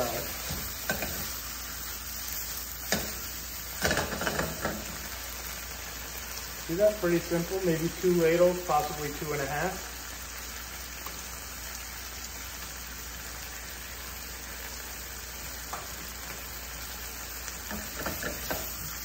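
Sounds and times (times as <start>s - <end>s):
food frying in a pan: 0.0s - 19.0s
utensils knocking on pan: 2.9s - 3.2s, 3.8s - 4.9s, 17.7s - 18.8s.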